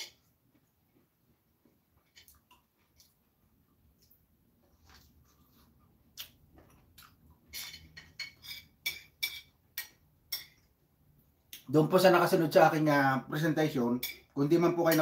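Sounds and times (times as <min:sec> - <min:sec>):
fork clinking on ceramic plate: 0:07.5 - 0:10.6.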